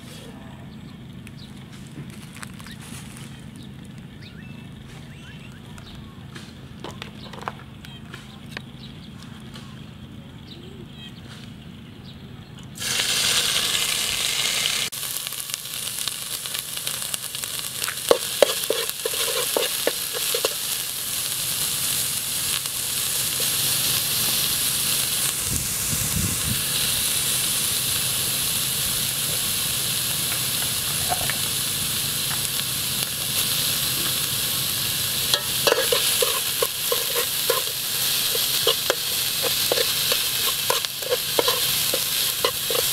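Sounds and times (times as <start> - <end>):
paste sizzling in hot oil: 12.8 - 42.9
metal utensil scraping a pot: 18.1 - 20.8, 35.3 - 42.9.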